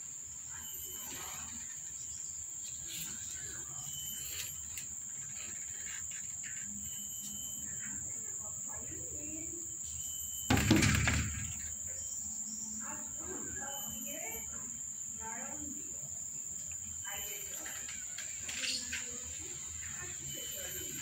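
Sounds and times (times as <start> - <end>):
insects droning: 0.0 - 21.0
loud bump: 10.5 - 11.8.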